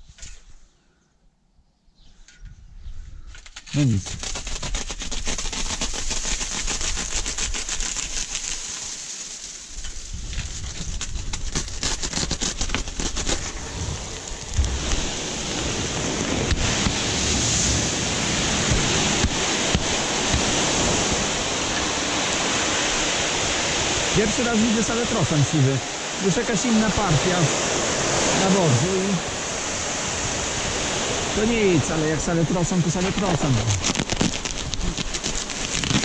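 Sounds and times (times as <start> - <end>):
fertilizer granules pouring: 3.7 - 23.2.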